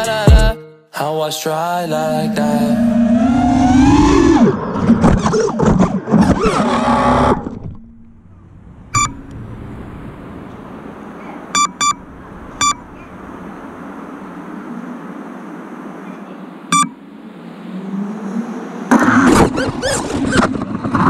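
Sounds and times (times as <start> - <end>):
drone motors whining: 2.0 - 13.7
short beeps: 8.9 - 9.3, 11.5 - 12.0, 12.6 - 12.8, 16.7 - 17.0.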